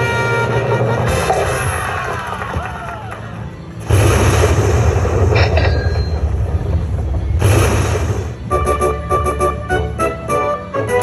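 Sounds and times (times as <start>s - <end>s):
noisy crashes: 3.8s - 8.6s
deep rumble: 3.8s - 8.8s.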